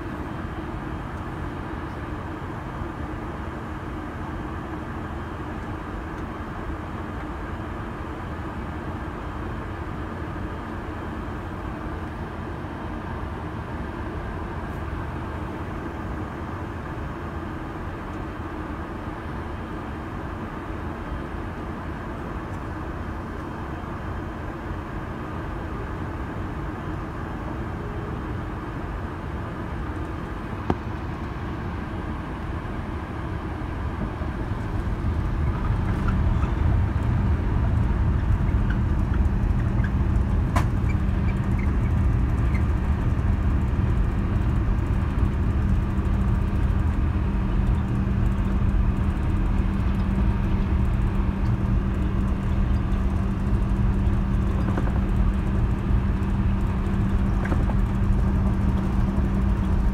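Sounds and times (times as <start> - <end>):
aircraft cabin rumble and hum: 0.0 - 59.9.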